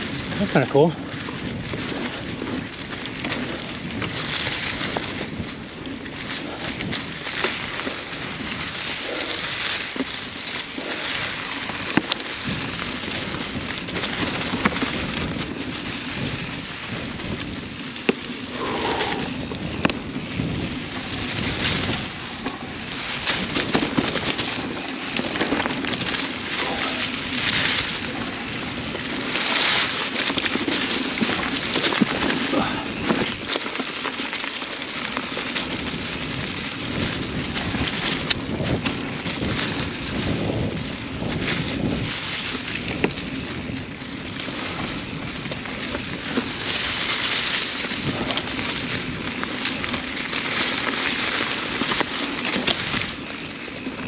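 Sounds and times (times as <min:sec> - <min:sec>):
tyre and wind noise: 0:00.0 - 0:54.0
bike clicks and knocks: 0:19.5 - 0:54.0.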